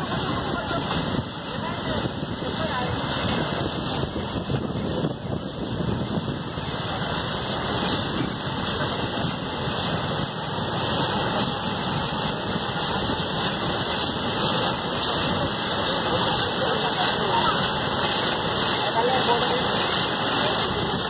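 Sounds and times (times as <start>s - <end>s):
falling water pattering: 0.0s - 21.0s
water spraying from burst pipe: 0.0s - 21.0s.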